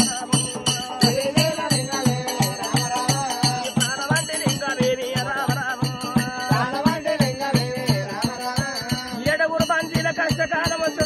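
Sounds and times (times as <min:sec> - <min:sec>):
jingling bells: 0:00.0 - 0:11.0
steady drum beat: 0:00.0 - 0:11.0.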